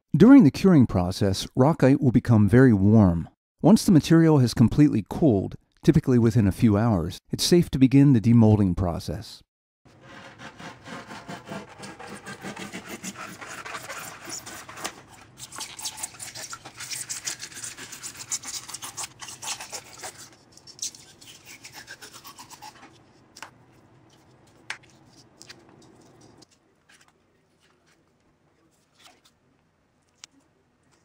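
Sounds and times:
foam scraping and squeaking: 9.9s - 20.5s.

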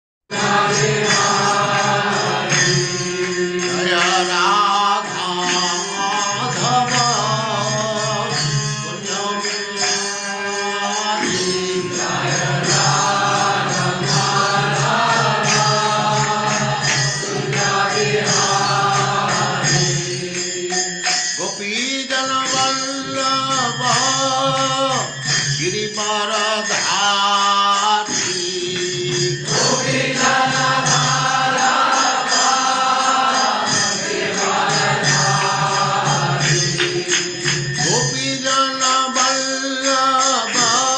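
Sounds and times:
steady held drone: 11.3s - 21.1s.

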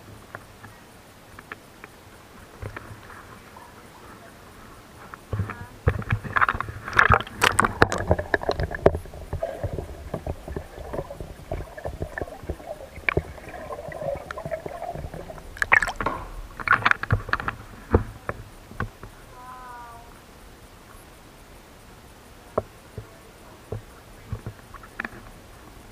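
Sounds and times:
paddle strokes splashing: 0.0s - 19.6s
water gurgling: 0.0s - 25.9s
sharp knocks and clicks: 5.3s - 19.2s.

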